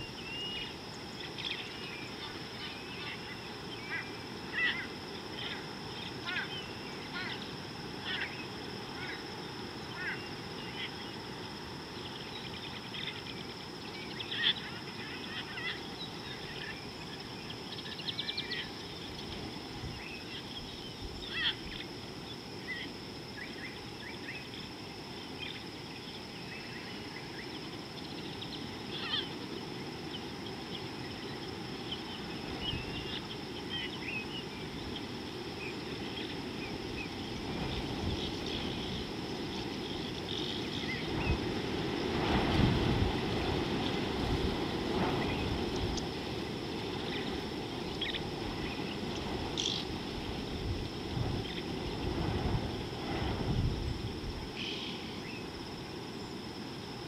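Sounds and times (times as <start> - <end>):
small birds chirping: 0.0 - 11.3, 11.9 - 41.6, 46.8 - 50.0.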